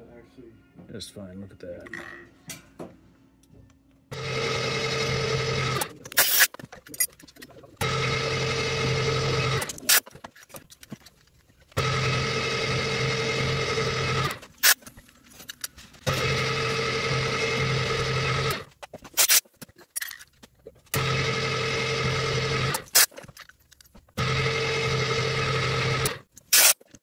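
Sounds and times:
milling machine humming and whining: 0:04.1 - 0:06.0, 0:07.8 - 0:09.8, 0:11.8 - 0:14.5, 0:16.1 - 0:18.6, 0:21.0 - 0:22.9, 0:24.2 - 0:26.2.

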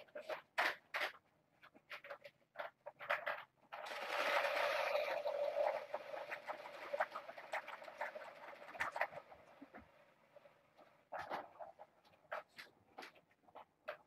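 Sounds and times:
plastic balls rattling in track: 0:00.1 - 0:10.0.

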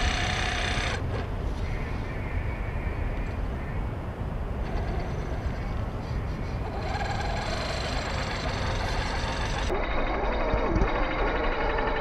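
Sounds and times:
electric motor whining: 0:00.0 - 0:01.0, 0:06.7 - 0:12.0
tyres churning through sand: 0:04.6 - 0:12.0.

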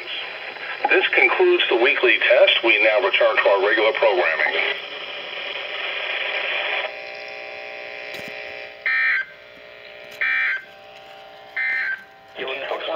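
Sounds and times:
warbling data bursts from radio speaker: 0:00.0 - 0:12.9.

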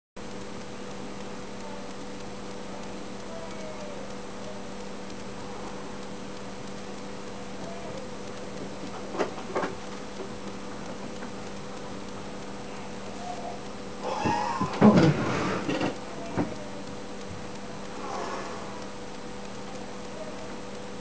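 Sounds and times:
quick clicks: 0:00.2 - 0:21.0
room hum and hiss: 0:00.2 - 0:21.0.

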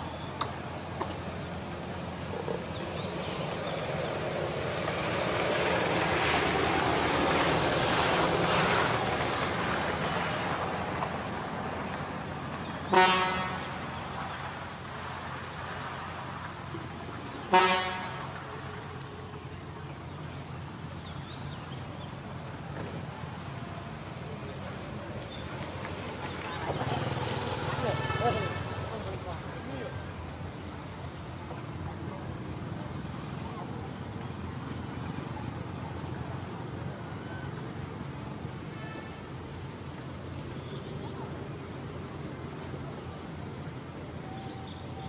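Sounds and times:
motor vehicle passing: 0:01.2 - 0:45.0
short horn toots: 0:12.9 - 0:13.6, 0:17.5 - 0:18.2.

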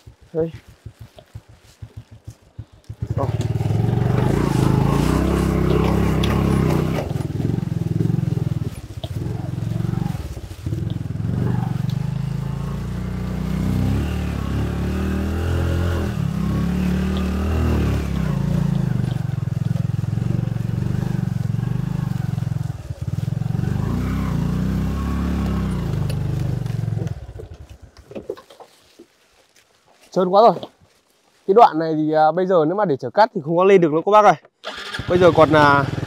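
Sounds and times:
small motorcycle engine revving: 0:00.5 - 0:28.0, 0:34.6 - 0:36.0.

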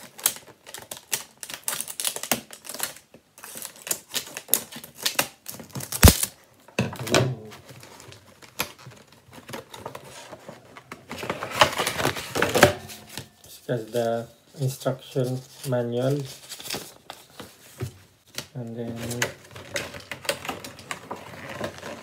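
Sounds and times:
packaging clicks and rustles: 0:00.0 - 0:06.4, 0:07.6 - 0:13.5, 0:15.3 - 0:22.0.

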